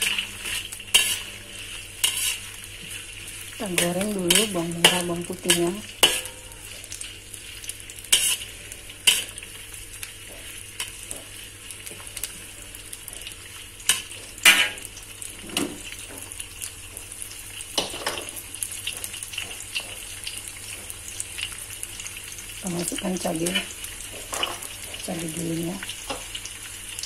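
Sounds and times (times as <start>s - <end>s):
metal spatula scraping a wok: 0.0s - 6.8s, 7.4s - 9.6s
shallots sizzling in hot oil: 0.0s - 27.0s.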